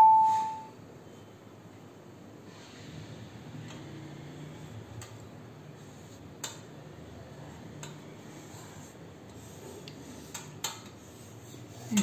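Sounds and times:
marker rubbing on paper: 0:05.7 - 0:06.3, 0:08.2 - 0:12.0.

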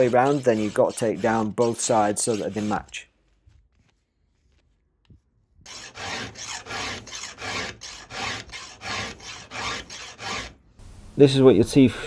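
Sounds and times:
file rasping on chainsaw teeth: 0:00.0 - 0:02.9, 0:05.7 - 0:10.6.

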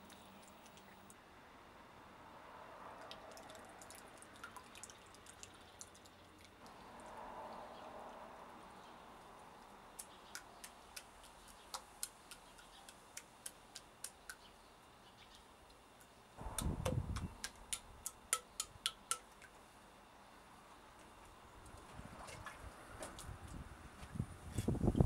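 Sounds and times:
water dripping into water: 0:03.0 - 0:07.8, 0:09.2 - 0:14.5, 0:15.7 - 0:19.6.

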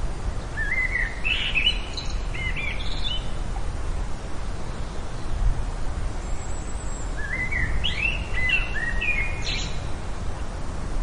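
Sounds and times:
wind rumbling on microphone: 0:00.0 - 0:11.0.

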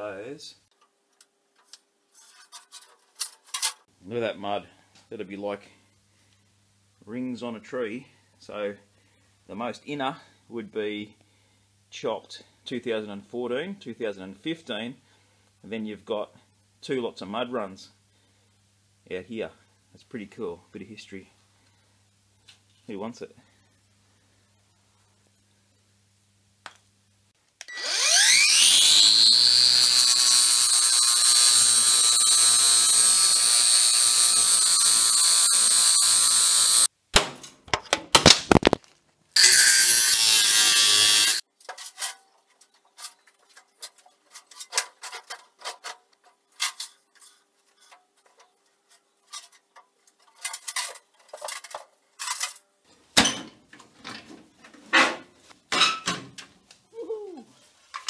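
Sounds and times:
angle grinder cutting steel: 0:27.7 - 0:36.9, 0:39.4 - 0:41.4.

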